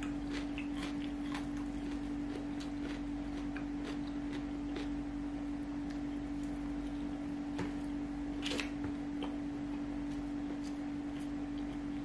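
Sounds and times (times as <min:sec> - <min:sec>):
chewing smacks: 0:00.0 - 0:04.9
low hum: 0:00.0 - 0:12.0.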